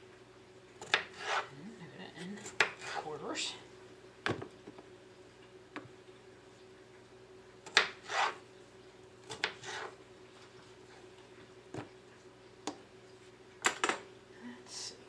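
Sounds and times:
knife scraping cutting board: 0.8s - 1.5s, 2.2s - 3.1s, 7.7s - 8.4s, 9.3s - 10.0s.

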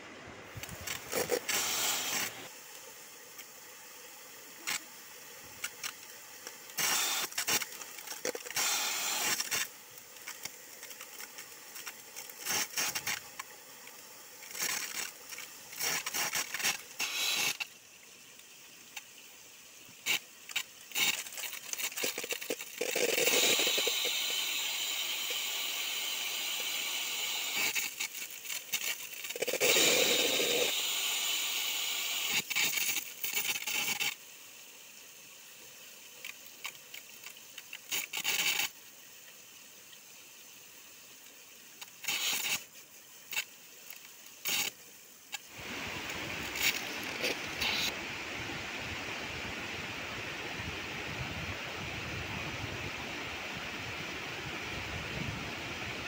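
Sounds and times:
crackles and clicks: 0.5s - 3.6s, 4.5s - 30.8s, 32.2s - 34.2s, 36.2s - 40.1s, 41.1s - 48.0s
stream trickling over rocks: 0.5s - 31.1s, 31.8s - 48.2s.

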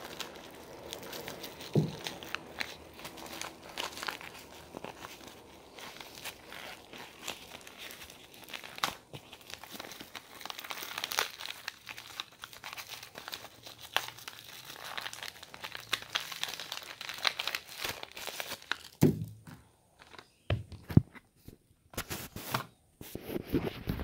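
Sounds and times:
plastic packaging crinkling: 0.0s - 21.0s.

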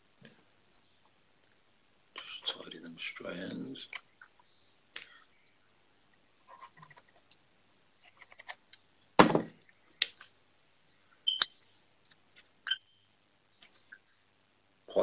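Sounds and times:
loud knock: 9.2s - 9.6s.

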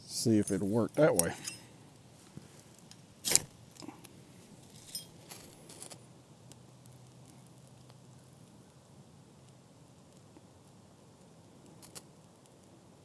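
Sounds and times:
light scrapes and clicks: 0.4s - 6.0s.

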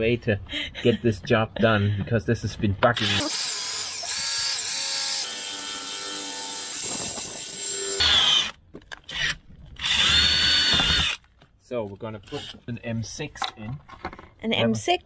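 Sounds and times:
cordless drill boring into metal: 3.0s - 11.2s, 12.3s - 12.6s.

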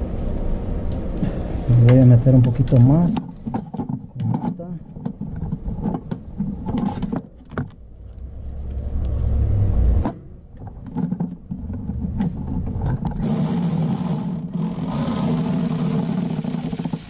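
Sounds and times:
cordless power tool motor: 13.2s - 17.0s.

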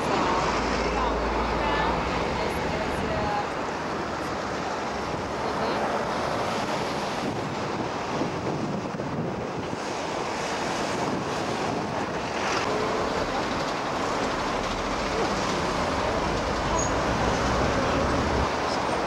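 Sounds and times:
road traffic hum: 0.0s - 19.0s
wind buffeting microphone: 0.0s - 19.0s.

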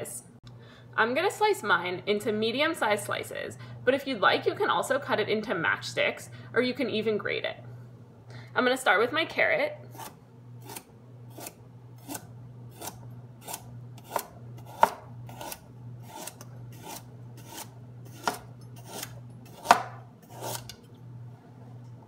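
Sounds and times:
knife chopping carrot: 9.9s - 20.8s.

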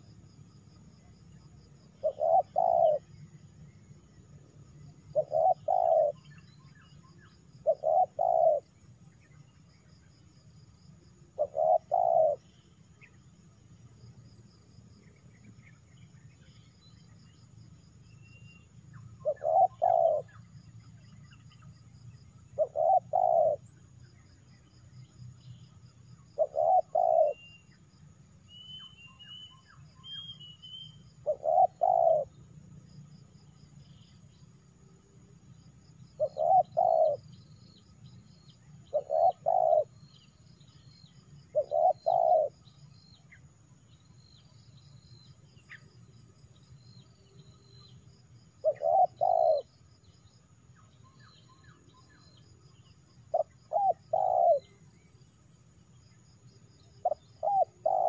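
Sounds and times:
dove cooing: 2.0s - 3.1s, 5.0s - 6.4s, 7.6s - 8.8s, 11.4s - 12.4s, 19.2s - 20.5s, 22.6s - 23.7s, 26.4s - 27.6s, 31.2s - 32.4s, 36.1s - 37.3s, 38.5s - 40.3s, 41.5s - 42.6s, 48.6s - 49.7s, 53.2s - 54.9s, 56.9s - 58.0s.

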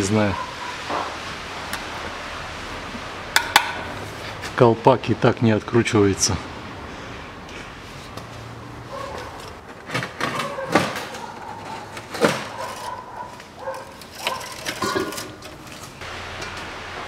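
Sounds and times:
rustling: 7.5s - 16.6s
hard parts knocking and clacking: 9.2s - 16.7s.

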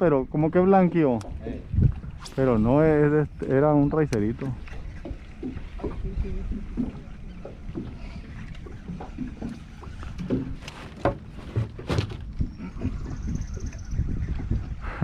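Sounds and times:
water lapping against boat hull: 0.0s - 15.0s
knocks and bumps in boat: 3.6s - 14.8s.

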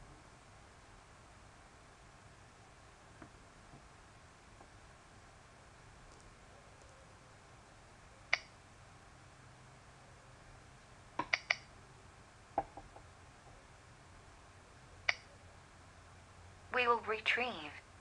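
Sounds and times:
faint steady hiss: 0.0s - 18.0s
computer mouse clicks: 8.3s - 8.5s, 11.2s - 11.7s.

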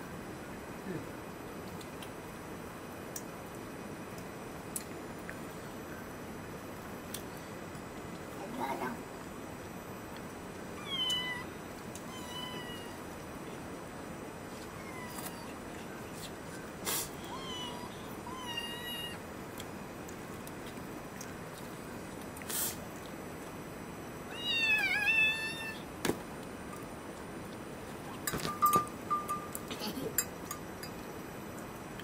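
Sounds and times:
kitten meowing: 10.8s - 11.5s, 12.1s - 13.0s, 17.2s - 19.2s, 24.3s - 25.8s
clinks: 28.3s - 31.0s.

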